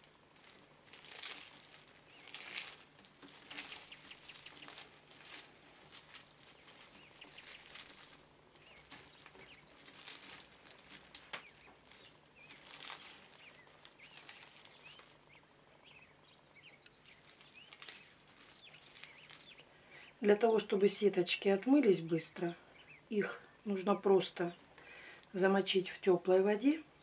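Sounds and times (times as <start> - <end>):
dried pepper flakes rustling: 0.0 - 20.1
faint bird chirps: 2.1 - 4.9, 6.5 - 10.4.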